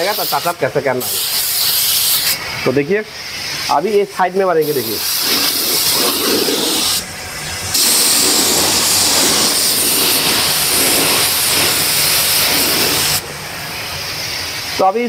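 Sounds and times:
paint spray gun hissing: 0.0s - 2.4s, 4.6s - 13.2s.

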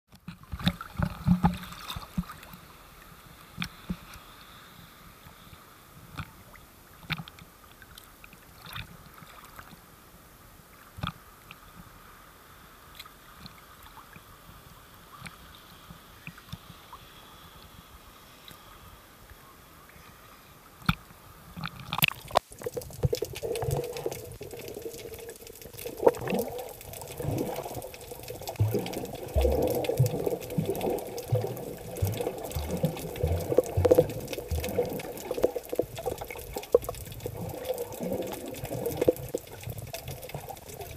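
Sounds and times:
small waves lapping and splashing: 0.2s - 9.9s, 19.8s - 40.9s
muffled underwater rush and gurgle: 0.2s - 40.9s
dull low underwater bumps: 22.6s - 40.9s.

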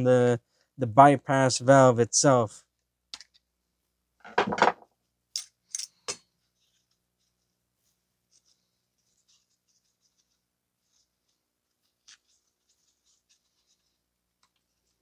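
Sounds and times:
knock: 4.3s - 4.8s
faint scratching and rustling: 6.3s - 15.0s.

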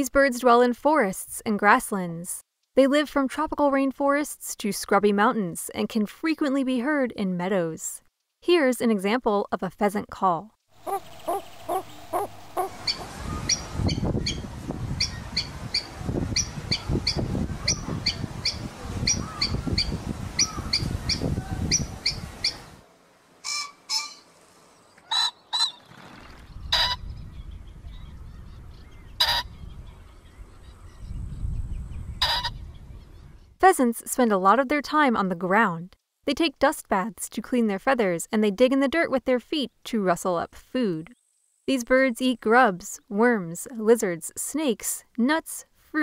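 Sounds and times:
steady low rumble: 10.8s - 16.6s
pheasant calls: 10.8s - 22.7s, 23.4s - 24.2s, 25.0s - 25.9s, 26.6s - 27.2s, 27.9s - 30.3s, 32.2s - 32.7s.

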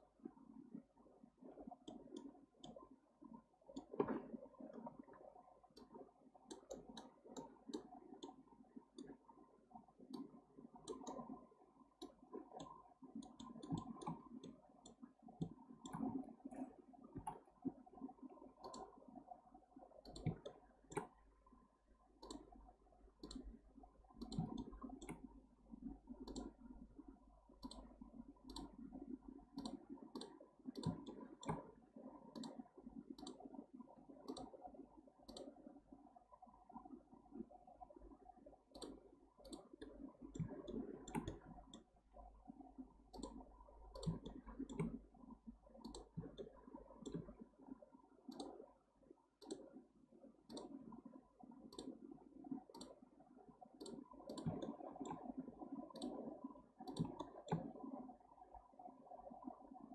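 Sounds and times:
computer mouse clicking: 1.8s - 2.8s, 3.7s - 4.9s, 5.7s - 9.2s, 10.0s - 11.4s, 12.0s - 17.4s, 18.6s - 19.0s, 20.0s - 21.2s, 22.1s - 25.3s, 26.1s - 26.7s, 27.6s - 31.7s, 32.3s - 33.6s, 34.2s - 35.7s, 38.7s - 41.9s, 43.0s - 45.1s, 45.7s - 47.4s, 48.3s - 48.7s, 49.4s - 49.8s, 50.5s - 51.0s, 51.6s - 53.0s, 53.8s - 57.8s.

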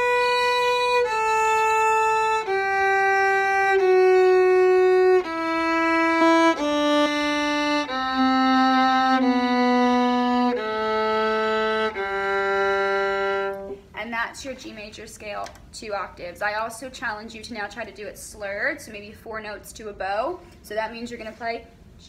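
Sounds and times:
viola playing descending scale: 0.0s - 13.8s.

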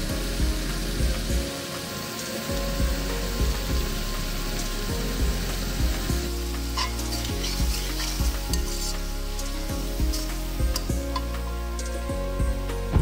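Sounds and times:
onions sizzling in oil: 0.0s - 12.8s
metal spatula scraping a pan: 6.3s - 12.1s.

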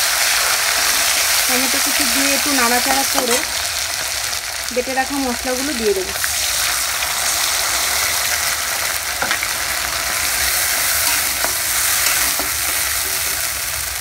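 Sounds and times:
hot oil sizzling: 0.0s - 14.0s
spatula knocking and scraping pan: 10.1s - 12.8s.

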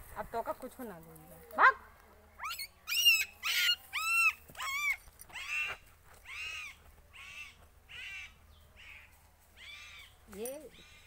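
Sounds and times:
dog yelping: 2.4s - 6.7s.

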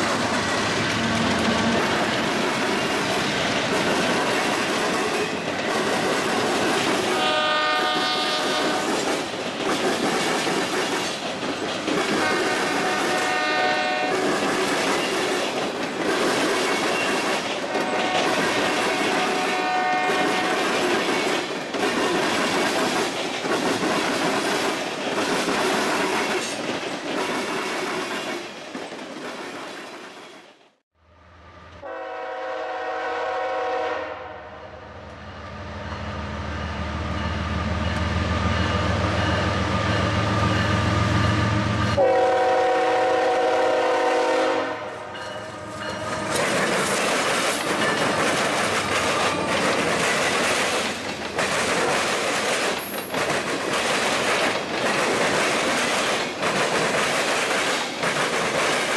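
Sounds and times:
train wheels clacking on rails: 0.0s - 30.4s, 37.1s - 58.9s
train horn blast: 7.1s - 8.9s, 12.2s - 14.2s, 17.7s - 20.7s, 31.1s - 35.6s, 40.6s - 46.3s.

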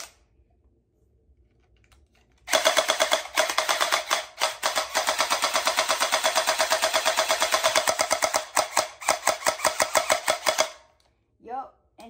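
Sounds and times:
gel blaster rapid firing: 2.5s - 10.8s.

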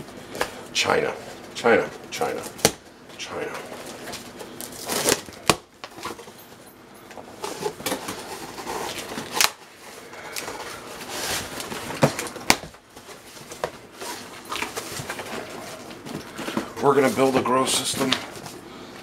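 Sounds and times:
cardboard scraping and rustling: 7.3s - 18.5s.

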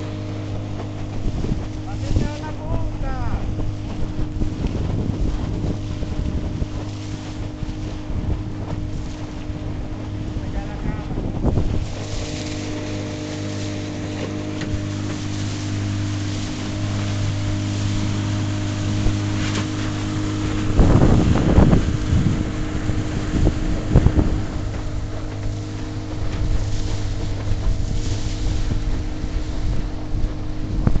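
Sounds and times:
boat motor humming: 0.0s - 31.0s
water rushing past hull: 0.0s - 31.0s
wind buffeting microphone: 0.0s - 31.0s.

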